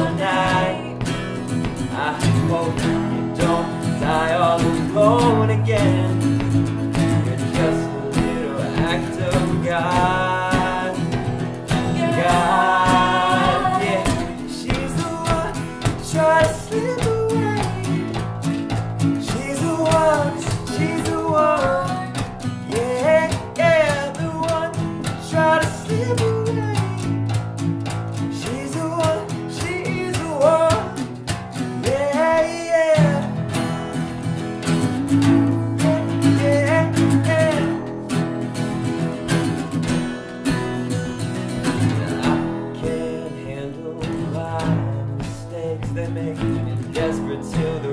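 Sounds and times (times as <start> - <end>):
people singing: 0.0 - 18.2, 19.2 - 26.2, 41.7 - 47.9
acoustic guitars strummed: 0.0 - 47.9.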